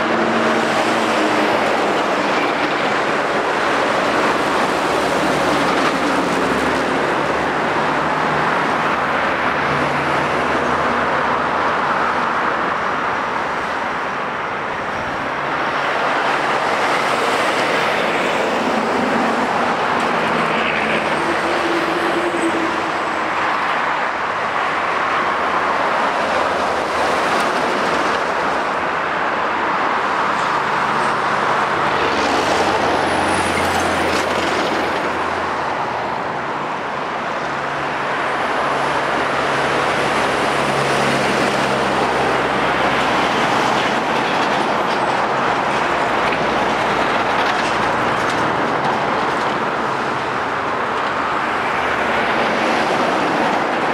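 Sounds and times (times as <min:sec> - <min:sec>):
heavy truck passing close: 0:00.0 - 0:14.0
traffic passing at speed: 0:00.0 - 0:53.9.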